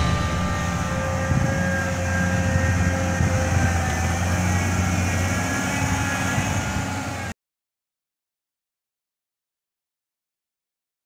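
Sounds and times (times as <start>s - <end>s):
diesel engine idling: 0.0s - 7.3s.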